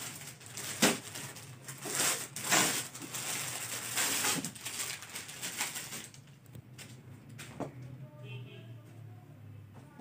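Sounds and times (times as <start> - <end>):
plastic bag crinkling: 0.0 - 6.9.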